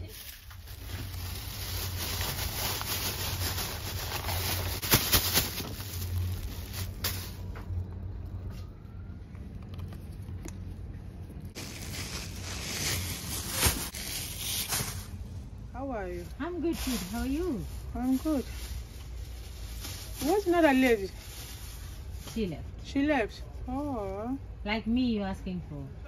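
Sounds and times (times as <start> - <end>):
plastic bags rustling and crinkling: 0.0 - 8.0, 11.5 - 22.6.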